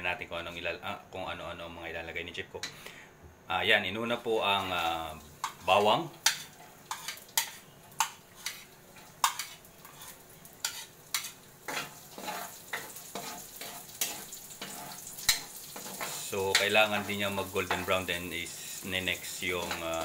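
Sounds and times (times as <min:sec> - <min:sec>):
garlic sizzling in hot oil: 0:04.2 - 0:20.0
spatula scraping a wok: 0:04.6 - 0:20.0.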